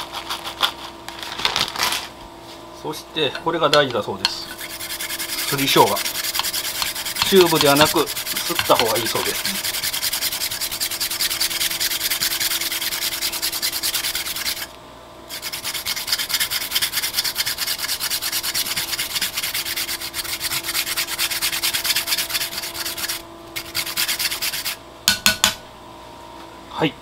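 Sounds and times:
ginger rasping on a grater: 0.0 - 1.0, 4.3 - 14.7, 15.3 - 24.8.

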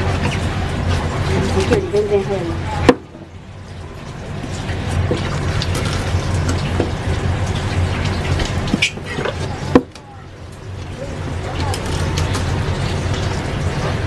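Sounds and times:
tap water splashing: 0.0 - 3.3, 4.0 - 10.9.

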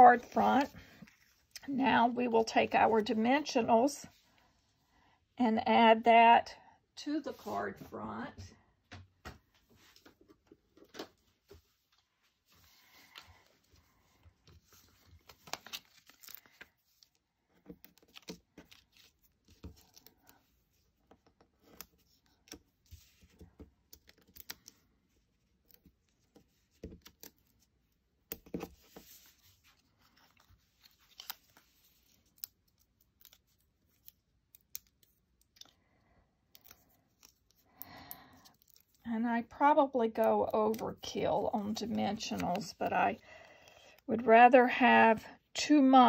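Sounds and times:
adhesive backing peeling crackle: 30.1 - 35.6.

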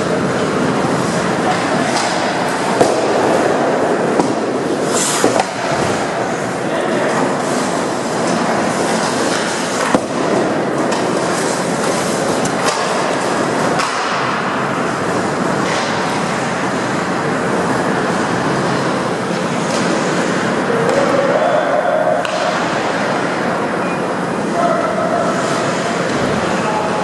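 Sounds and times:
ice skates rushing: 0.4 - 14.6
hockey stick clacks: 1.5 - 3.6, 4.2 - 6.0, 8.2 - 14.4, 22.2 - 22.8.

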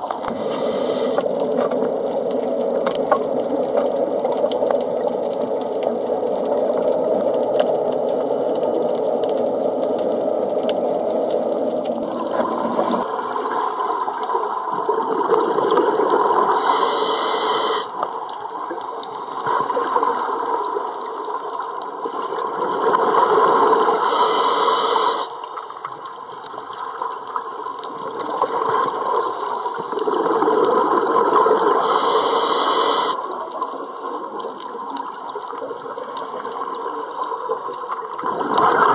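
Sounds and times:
scuba regulator breathing: 0.2 - 1.4, 16.6 - 17.9, 23.9 - 25.4, 31.8 - 33.2
breath and bubbles bursts: 11.2 - 18.0, 19.3 - 21.0, 22.0 - 25.4, 27.9 - 38.9.

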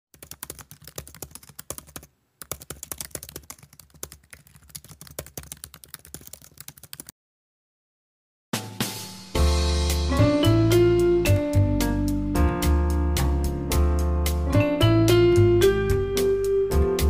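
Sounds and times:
computer keyboard typing: 0.1 - 7.1.

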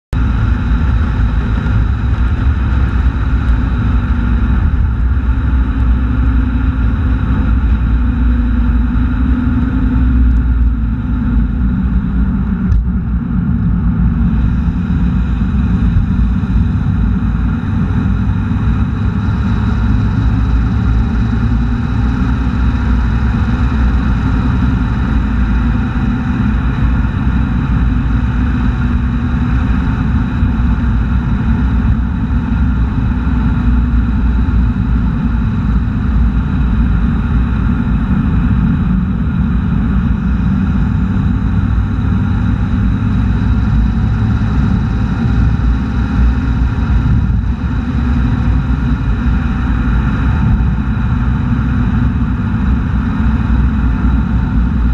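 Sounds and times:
car engine drone: 0.1 - 54.9.

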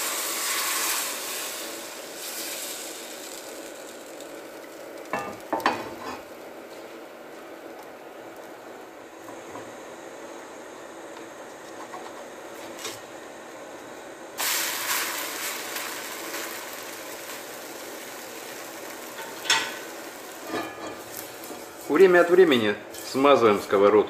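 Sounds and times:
pancake sizzling in a pan: 0.0 - 7.5, 14.4 - 23.1.

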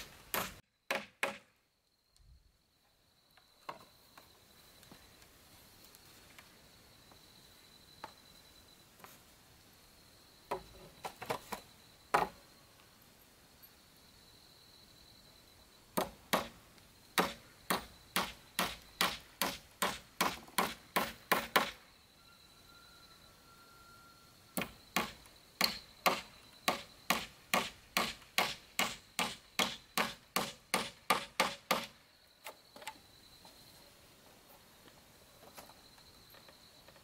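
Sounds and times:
hammer driving nails into wood: 0.3 - 1.5, 17.2 - 21.8, 24.6 - 31.9.

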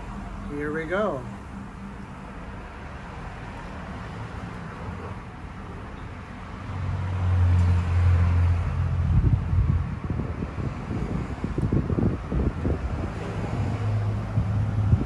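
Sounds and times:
low engine rumble: 0.0 - 15.0
wind buffeting microphone: 8.0 - 15.0.

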